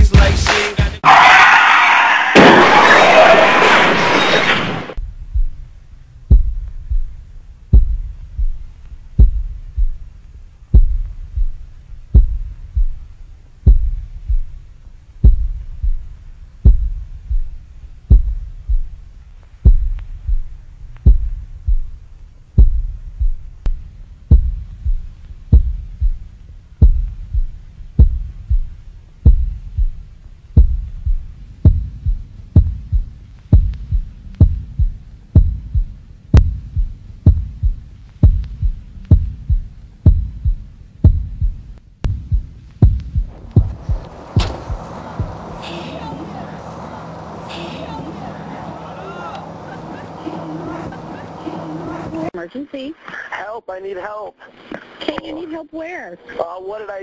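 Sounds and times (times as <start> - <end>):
heartbeat double thumps: 5.0 - 45.6.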